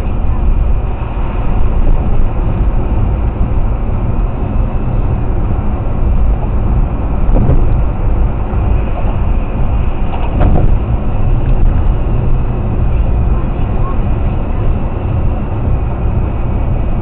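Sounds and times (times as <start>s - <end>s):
car engine rumble: 0.0s - 17.0s
road and tyre noise: 0.0s - 17.0s
brief knocks: 7.3s - 7.8s.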